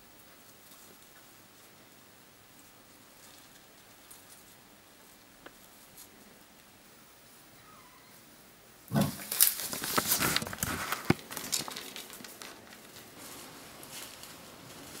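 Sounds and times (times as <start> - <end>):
animals rustling through dry leaves: 0.4 - 6.6, 8.9 - 15.0
twigs snapping: 9.1 - 13.1.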